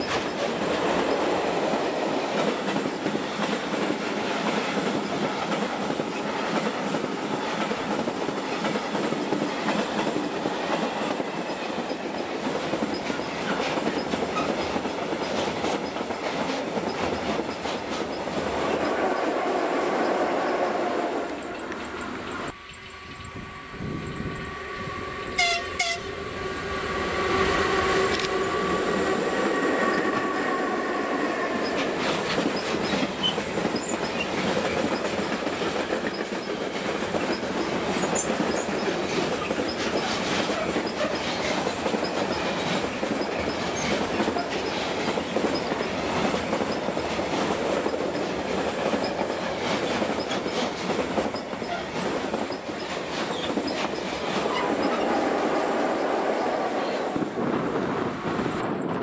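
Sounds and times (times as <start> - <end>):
wheels clacking over rail joints: 0.0 - 23.3, 28.0 - 57.2
train horn: 18.7 - 31.9.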